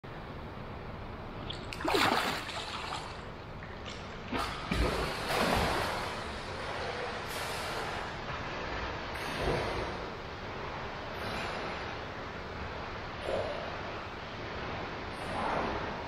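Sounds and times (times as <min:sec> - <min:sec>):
swimming strokes splashing: 0:01.4 - 0:10.2
swimmer splashing: 0:01.4 - 0:10.8.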